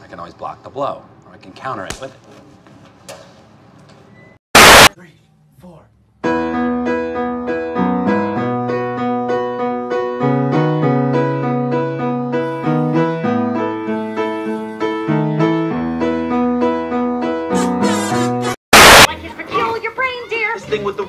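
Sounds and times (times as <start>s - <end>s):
piano playing repeated chords: 6.2s - 18.4s.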